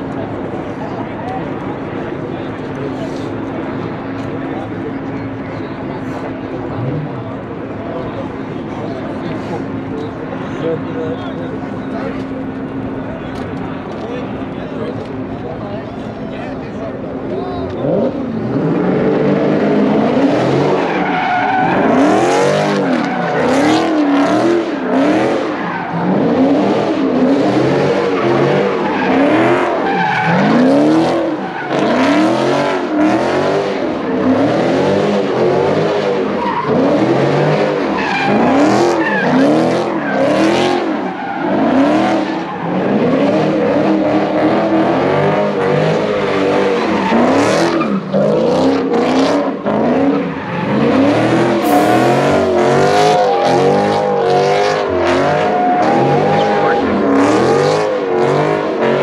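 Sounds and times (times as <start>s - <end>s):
car engine revving: 17.0s - 59.0s.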